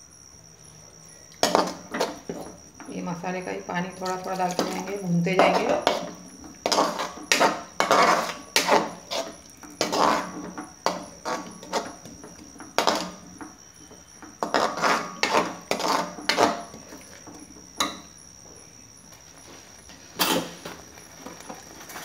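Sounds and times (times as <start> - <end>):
paste frying: 3.9 - 17.9
metal spoon scraping frying pan: 4.0 - 18.0, 20.2 - 20.6.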